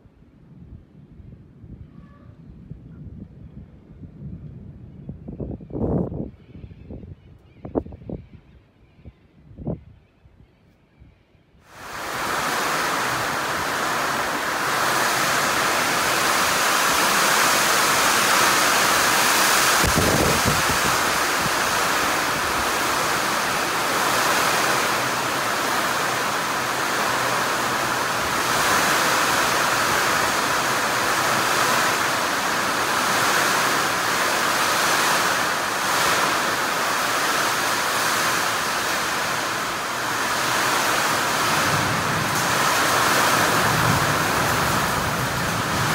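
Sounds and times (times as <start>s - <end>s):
heavy rain on concrete: 11.7s - 45.9s.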